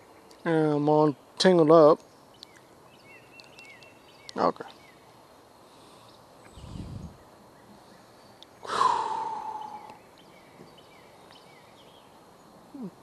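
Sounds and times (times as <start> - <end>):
faint bird chirps: 2.0 - 13.0
person sighing: 8.7 - 9.9, 12.8 - 13.0.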